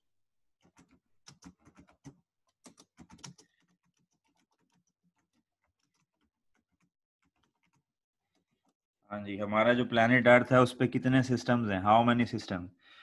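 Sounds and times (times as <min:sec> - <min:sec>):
computer keyboard typing: 0:00.6 - 0:08.7.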